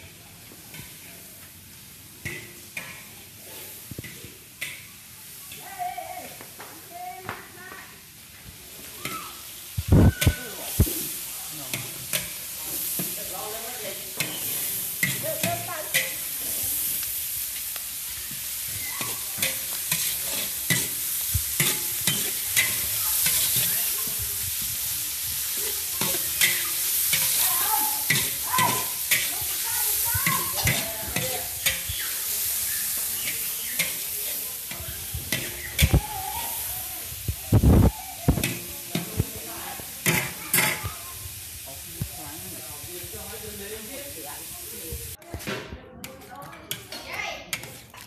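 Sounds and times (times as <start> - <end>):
meat sizzling in a wok: 0.0 - 45.2
metal spatula scraping a pan: 10.2 - 17.8, 18.4 - 24.2, 25.5 - 36.7.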